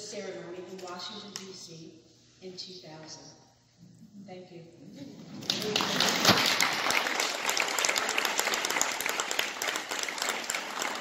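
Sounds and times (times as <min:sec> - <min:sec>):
audience applause: 0:05.4 - 0:11.0.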